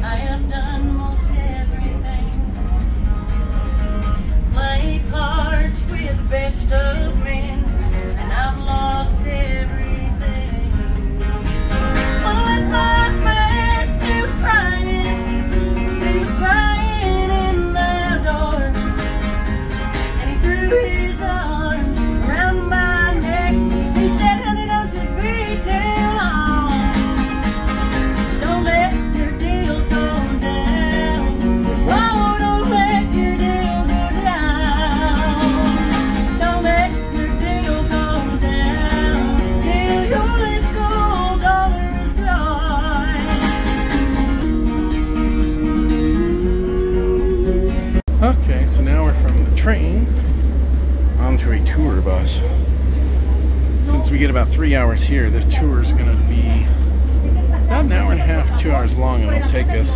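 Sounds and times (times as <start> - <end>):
woman singing: 0.0 - 2.8, 4.5 - 11.1, 12.1 - 19.4, 20.0 - 27.4, 28.2 - 48.0
acoustic guitar: 0.0 - 59.9
train rumble: 0.0 - 59.9.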